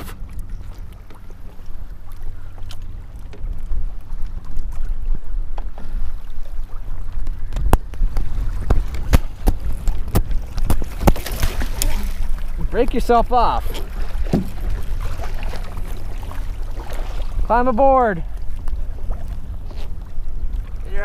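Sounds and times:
water lapping at kayak: 0.0 - 21.0
wind rumbling on microphone: 0.0 - 21.0.

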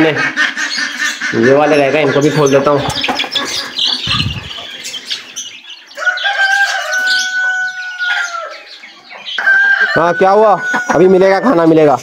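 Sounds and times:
birds flapping and rattling: 1.8 - 5.4
rooster crowing: 6.0 - 8.8, 9.4 - 11.6.

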